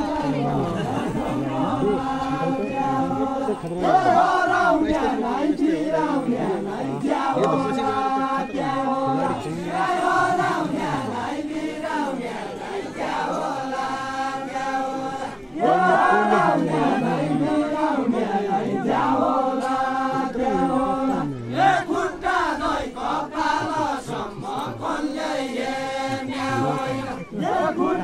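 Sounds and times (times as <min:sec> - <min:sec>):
men singing in chorus: 0:00.0 - 0:28.0.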